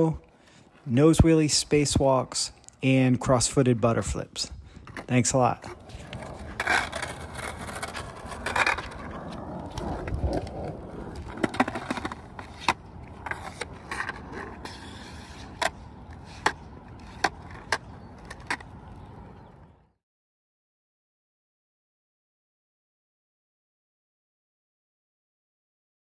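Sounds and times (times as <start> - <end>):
skateboard wheels rolling on hardcourt: 3.1 - 19.6
skateboard clicks and knocks: 4.8 - 19.7.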